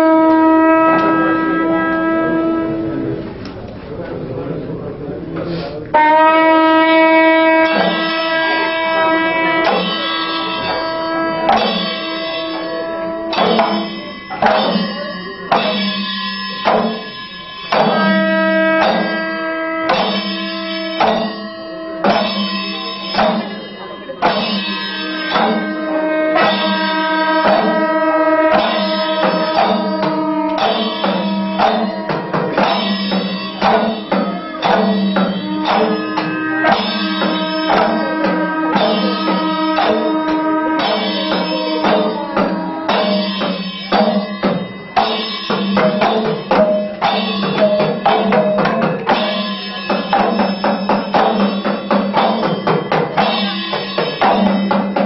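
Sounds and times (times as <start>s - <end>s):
horns holding tones: 0.0s - 55.0s
drums beating rapidly: 6.0s - 55.0s.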